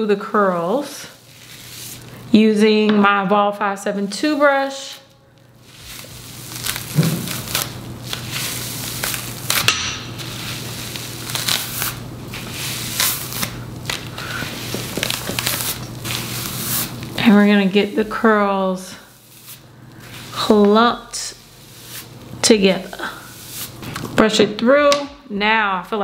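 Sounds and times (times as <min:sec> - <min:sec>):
brush rasping through wet hair: 0:00.4 - 0:02.2, 0:05.6 - 0:09.6, 0:10.2 - 0:23.9.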